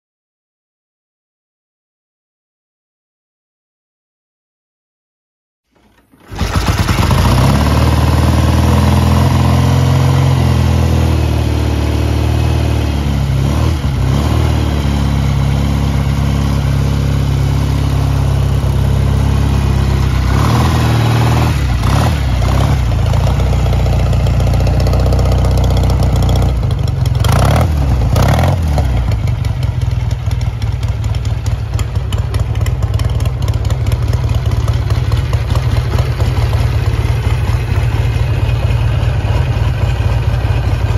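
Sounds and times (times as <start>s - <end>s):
motorcycle engine idling: 15.0s - 20.4s, 21.2s - 40.9s.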